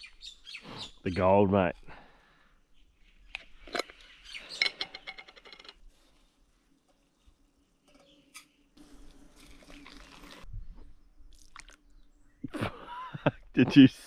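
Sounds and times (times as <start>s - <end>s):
hot water pouring into cup: 8.8s - 10.5s.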